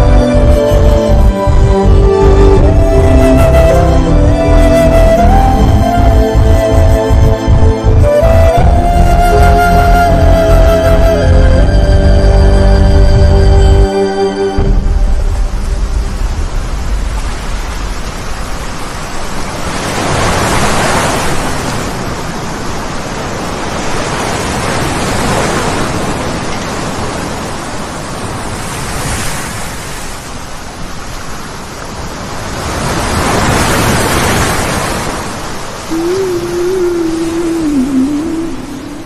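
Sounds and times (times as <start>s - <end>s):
wind: 0.0s - 39.0s
floodwater rushing: 14.6s - 39.0s.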